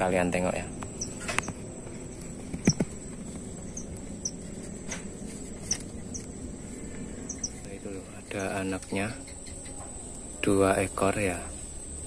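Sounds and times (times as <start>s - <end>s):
high insect whine: 0.0s - 12.0s.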